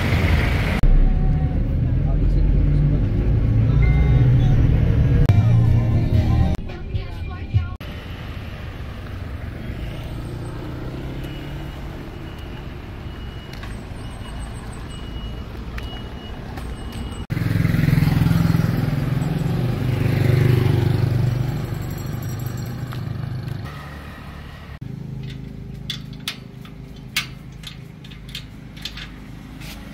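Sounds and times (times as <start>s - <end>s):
traffic hum: 0.0s - 29.9s
motor vehicle passing close: 8.0s - 14.9s, 15.6s - 26.9s
gate bolt clicking: 25.1s - 29.3s.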